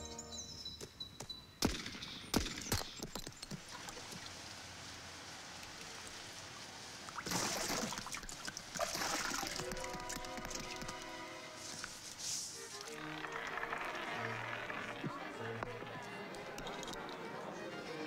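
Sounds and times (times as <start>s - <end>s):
sharp smacks: 1.6s - 3.1s
water splashing: 3.5s - 11.2s
water trickling and pouring: 5.4s - 11.2s.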